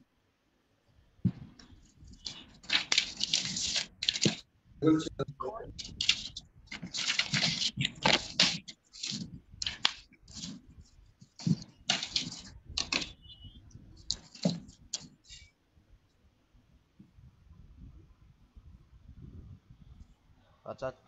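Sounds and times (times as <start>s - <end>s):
crackling and rustling noise: 1.2s - 16.2s.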